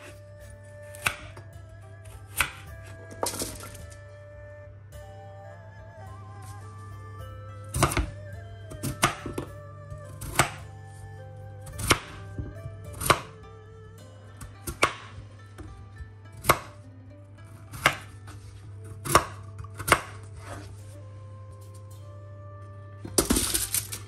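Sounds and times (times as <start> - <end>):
knife chopping on wooden board: 0.8 - 1.4, 2.0 - 2.6, 7.7 - 8.1, 8.8 - 9.5, 10.2 - 10.6, 11.7 - 13.3, 14.6 - 15.2, 16.4 - 16.8, 17.7 - 18.1, 19.0 - 20.7.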